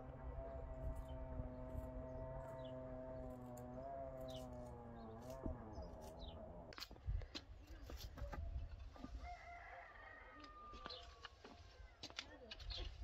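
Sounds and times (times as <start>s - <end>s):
rooster crowing: 9.2s - 11.0s.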